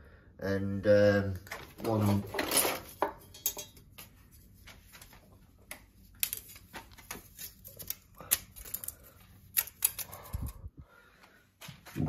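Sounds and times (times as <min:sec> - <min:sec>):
hand tools clicking and tapping: 0:05.7 - 0:10.5.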